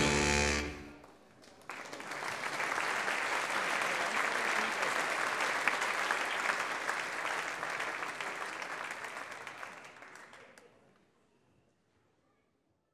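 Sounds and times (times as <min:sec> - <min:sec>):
audience applauding: 0:01.0 - 0:10.7.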